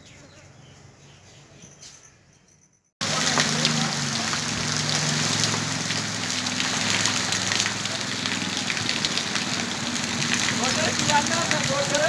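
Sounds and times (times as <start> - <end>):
rain pattering: 3.0 - 12.0.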